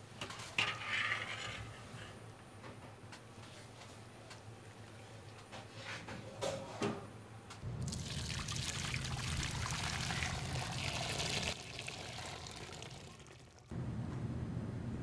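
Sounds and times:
water running: 7.8 - 13.7.

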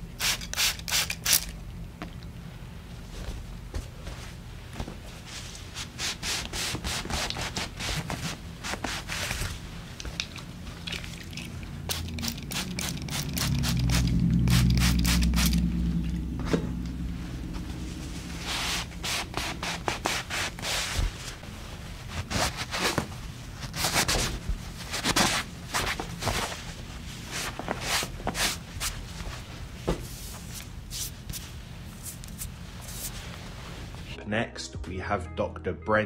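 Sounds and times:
towel rubbing skin: 5.1 - 9.8, 17.3 - 34.2
low rumble: 13.2 - 19.0.

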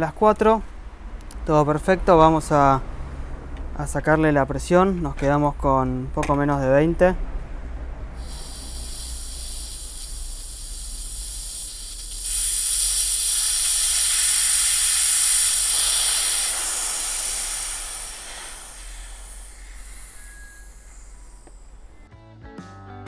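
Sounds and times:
air hissing from a tank: 8.1 - 22.1.

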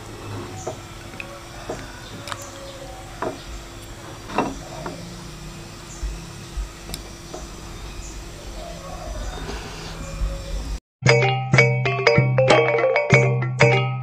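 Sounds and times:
faint steady hum: 0.0 - 10.8.

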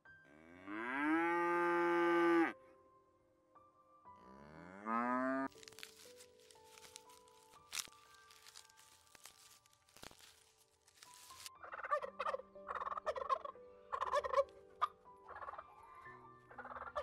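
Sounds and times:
turkeys gobbling: 11.6 - 15.6.

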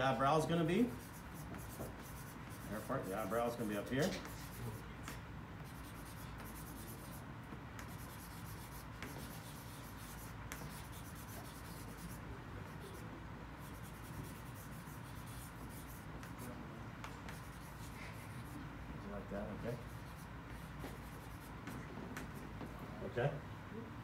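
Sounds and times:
drawing tool scratching on paper: 0.9 - 4.8, 5.6 - 7.2, 7.8 - 13.0, 13.6 - 16.5, 17.1 - 18.6, 19.8 - 22.4.

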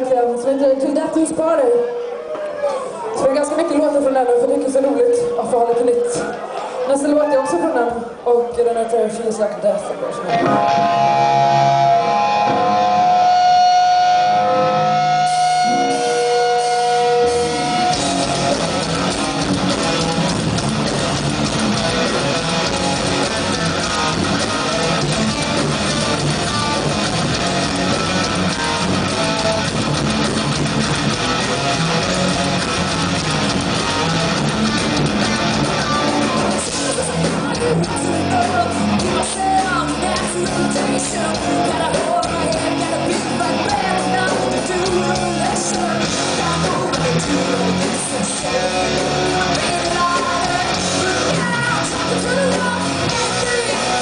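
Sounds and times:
live hard rock band: 10.2 - 54.0
held electric guitar notes: 10.3 - 39.2.

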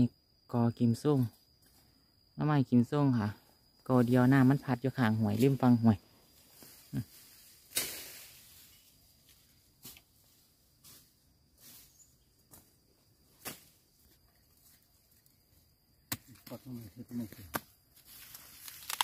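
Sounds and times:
twigs snapping and crackling: 17.3 - 19.0.

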